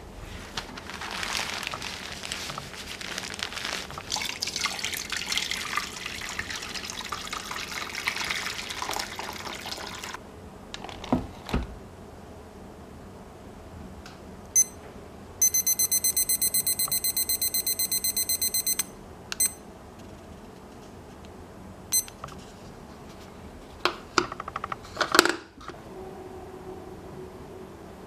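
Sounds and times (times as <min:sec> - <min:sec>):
kitchen timer beeping: 0:14.6 - 0:14.8, 0:15.4 - 0:19.6, 0:21.9 - 0:22.2.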